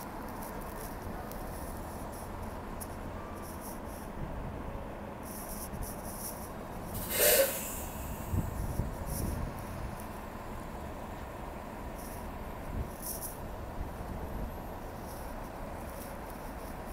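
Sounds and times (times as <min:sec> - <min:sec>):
bus engine idling: 0:00.0 - 0:16.9
pneumatic air hiss: 0:06.9 - 0:08.6.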